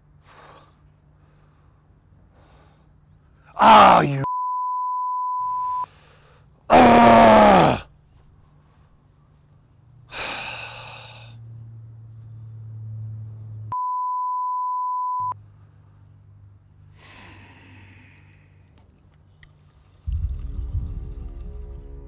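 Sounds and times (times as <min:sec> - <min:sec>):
censor beep: 0:04.3 - 0:05.9, 0:13.7 - 0:15.4
man sighing heavily: 0:10.1 - 0:11.3.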